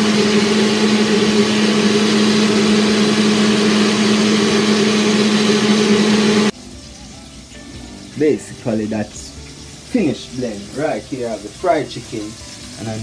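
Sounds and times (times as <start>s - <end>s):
blender motor running: 0.0s - 6.5s.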